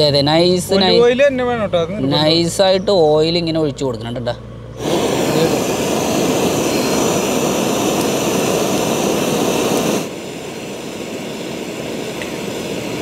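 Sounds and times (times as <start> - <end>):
gas torch flame hissing: 4.8 - 13.0.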